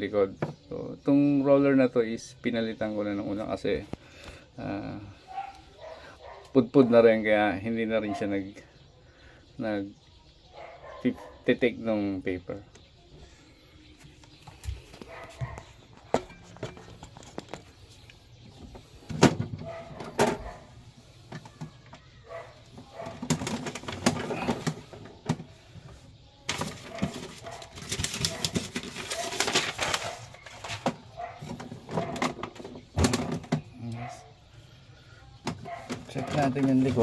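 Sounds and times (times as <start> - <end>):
rubbing and rattling against mat: 18.5 - 33.7
plastic printer casing handled: 23.0 - 25.5, 26.5 - 33.7.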